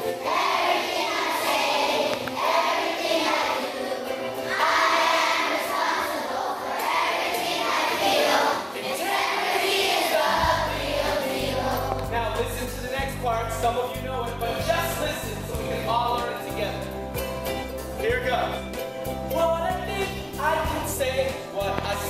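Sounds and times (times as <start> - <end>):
strummed ukulele: 0.0 - 8.1, 10.3 - 22.0
children singing: 0.0 - 12.2
man leading singing: 10.1 - 16.8, 19.3 - 22.0.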